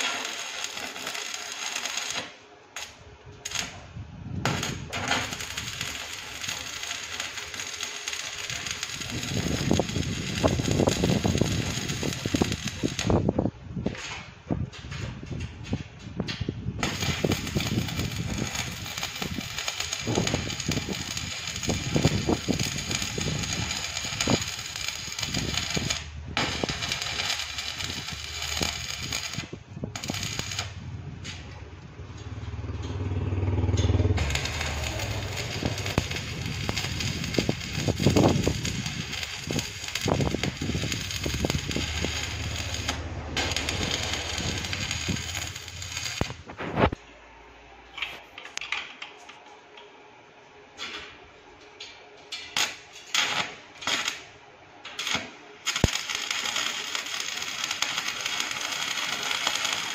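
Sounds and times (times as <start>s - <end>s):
welding arc crackling: 0.0s - 14.1s, 14.7s - 47.0s, 52.3s - 54.3s, 54.9s - 59.9s
low hum: 14.5s - 47.9s.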